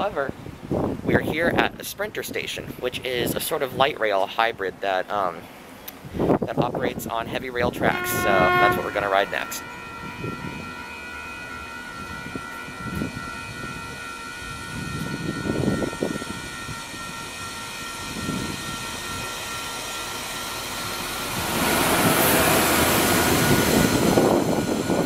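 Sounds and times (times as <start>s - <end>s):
diesel railcar passing: 7.4s - 25.0s.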